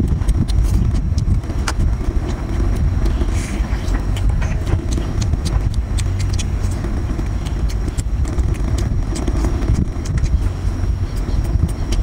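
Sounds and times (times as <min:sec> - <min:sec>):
lobster shell cracking and chewing: 0:00.0 - 0:03.2, 0:04.1 - 0:10.4
wind buffeting microphone: 0:00.0 - 0:12.0.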